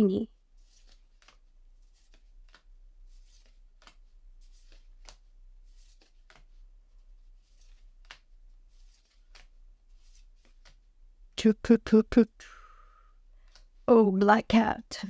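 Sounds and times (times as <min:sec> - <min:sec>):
trading cards sliding and flicking: 0:00.6 - 0:10.8, 0:13.4 - 0:13.8.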